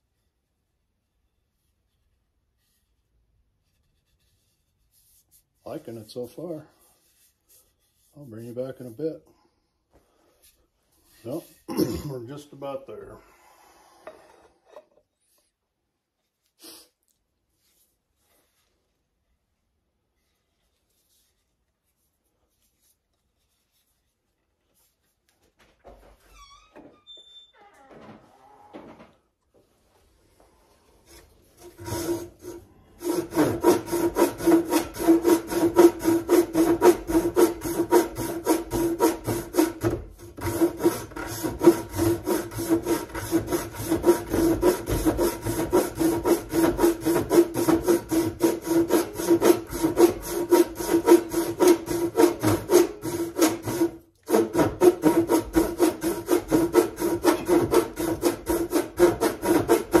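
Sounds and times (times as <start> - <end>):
hand saw cutting wood: 31.0 - 60.0.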